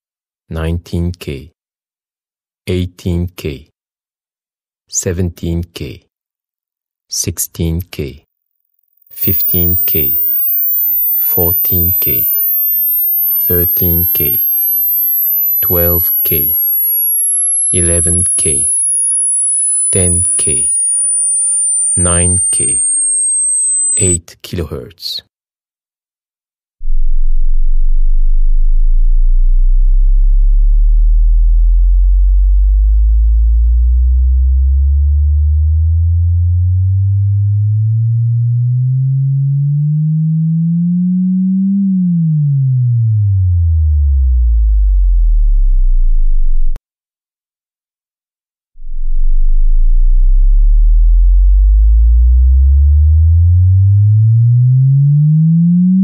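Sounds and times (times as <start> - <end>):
sine tone sweeping: 9.1 - 24.2, 48.8 - 56.0.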